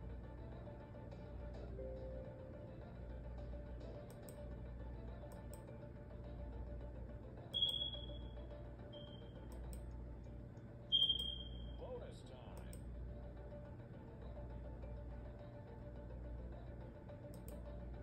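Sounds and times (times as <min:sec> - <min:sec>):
faint low hum: 0:00.0 - 0:18.0
short high-pitched electronic beeps: 0:07.6 - 0:09.4, 0:10.9 - 0:11.8.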